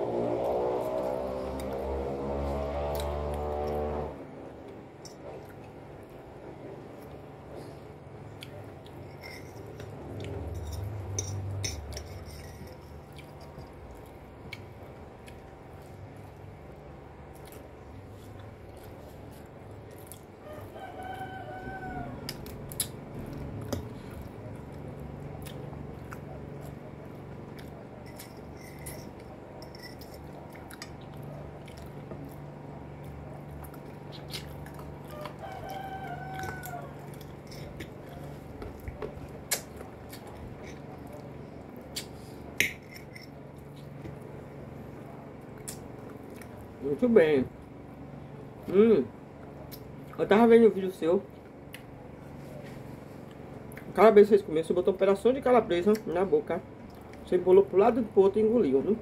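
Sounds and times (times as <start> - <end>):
chewing: 12.0 - 16.5, 17.3 - 20.3, 22.3 - 29.4, 30.0 - 42.2, 45.0 - 46.7, 56.8 - 57.3
rooster crowing: 20.4 - 22.5, 35.0 - 37.3.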